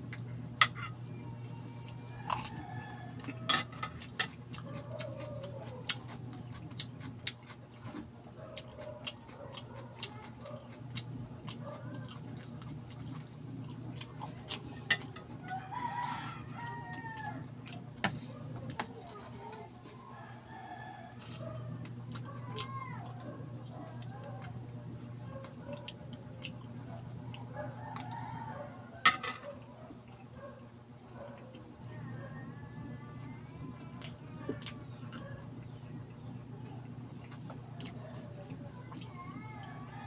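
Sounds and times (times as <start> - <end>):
steady low hum: 0.0 - 40.0
rooster crowing: 1.8 - 3.9, 15.3 - 17.6, 20.0 - 21.7, 27.4 - 29.5, 39.2 - 40.0.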